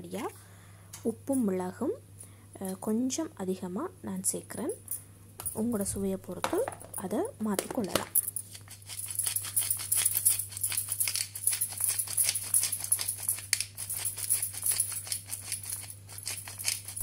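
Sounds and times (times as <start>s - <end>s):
pepper mill grinding: 6.4s - 17.0s.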